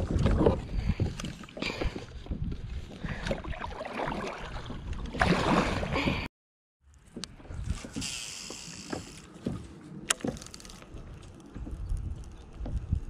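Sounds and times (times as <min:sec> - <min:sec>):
paddle splashing in water: 0:03.1 - 0:06.2.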